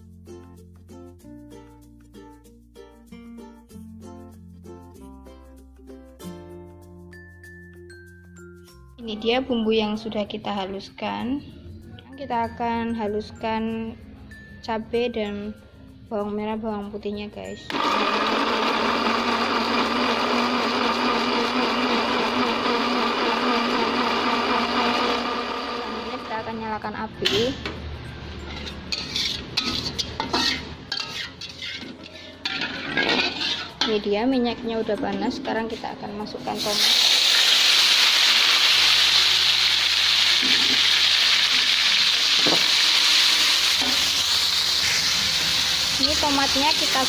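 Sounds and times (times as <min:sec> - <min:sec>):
blender motor running: 0:17.7 - 0:26.4, 0:36.9 - 0:47.0
metal spatula stirring: 0:28.4 - 0:34.2
tomatoes sizzling in oil: 0:36.5 - 0:47.0.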